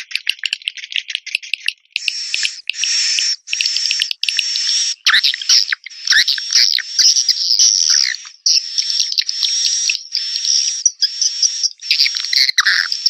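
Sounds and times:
swiftlet twittering chirps: 2.0s - 13.0s.

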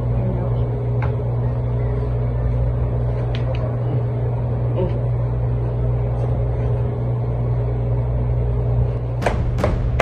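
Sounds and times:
steady low hum: 0.0s - 10.0s
sharp knocks: 9.2s - 10.0s.

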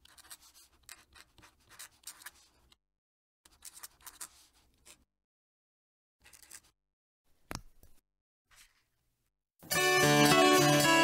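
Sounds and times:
pen nib scratching paper: 0.0s - 2.8s, 3.5s - 5.1s.

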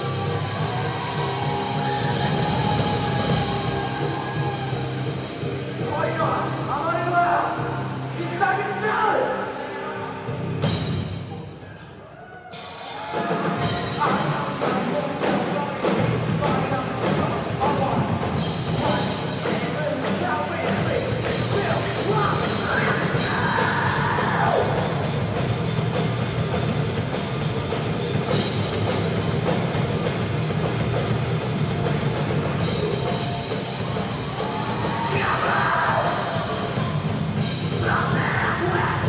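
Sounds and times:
live rock band playing: 0.0s - 8.9s, 9.6s - 11.3s, 12.5s - 39.0s
voice over band: 29.1s - 39.0s.

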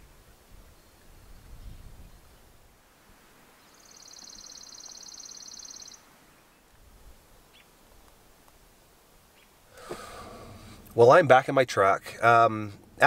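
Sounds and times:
faint outdoor background: 0.0s - 13.0s
small bird trilling: 3.7s - 6.0s.

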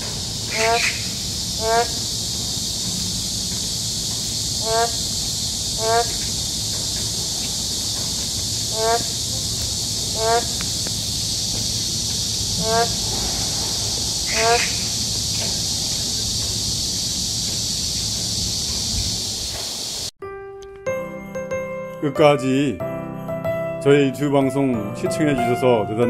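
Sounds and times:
frogs calling: 0.0s - 20.1s
steady high-pitched hiss: 0.0s - 20.1s.

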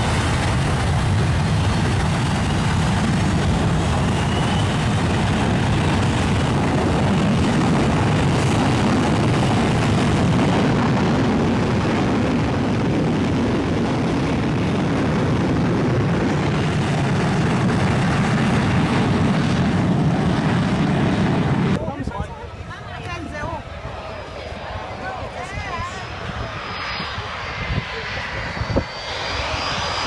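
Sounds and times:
jet engines roaring: 0.0s - 30.0s.

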